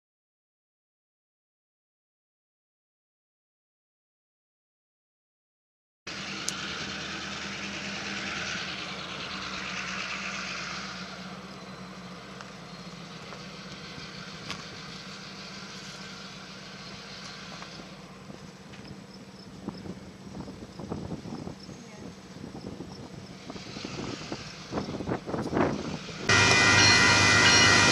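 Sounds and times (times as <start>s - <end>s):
engine idling: 6.1s - 27.9s
hiss: 23.3s - 25.0s.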